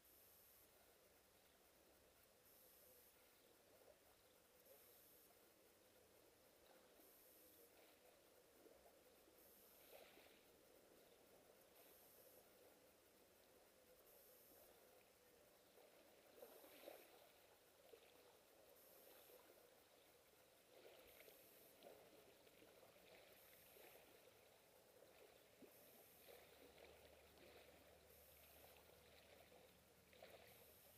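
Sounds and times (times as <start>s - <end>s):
small waves lapping on pebbles: 15.7s - 30.9s.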